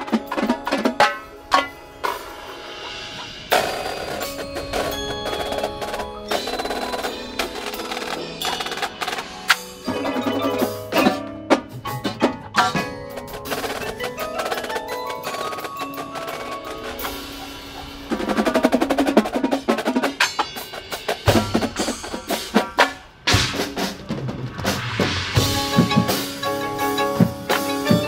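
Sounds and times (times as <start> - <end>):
marching drumline: 0.0 - 28.0
snare drum rolls: 18.0 - 26.6.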